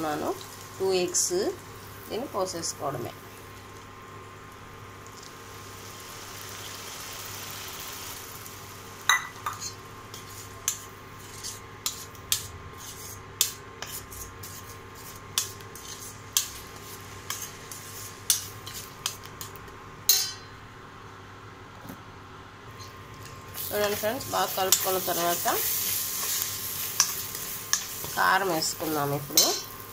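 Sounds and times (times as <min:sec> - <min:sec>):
fork clinking against metal pan: 0:29.4 - 0:29.7.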